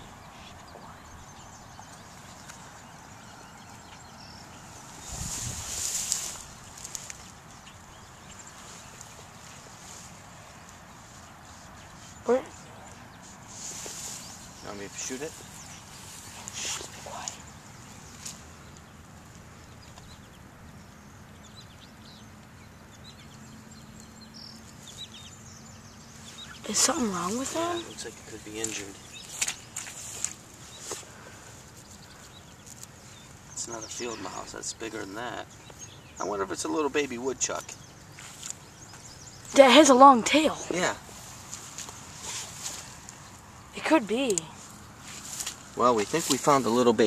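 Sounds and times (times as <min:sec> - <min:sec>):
distant birds chirping: 0:00.0 - 0:47.0
rustling in grass: 0:01.8 - 0:19.6, 0:24.4 - 0:36.4, 0:37.4 - 0:47.0
rushing hiss with low rumble: 0:04.7 - 0:07.1.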